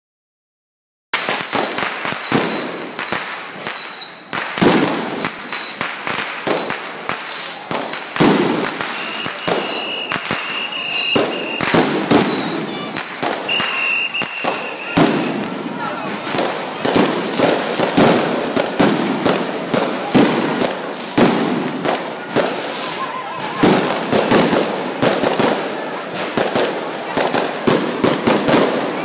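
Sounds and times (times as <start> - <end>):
firecrackers crackling: 1.2 - 29.0
firework bangs: 1.2 - 29.0
high whistle-like tone: 8.9 - 11.8, 12.4 - 15.0.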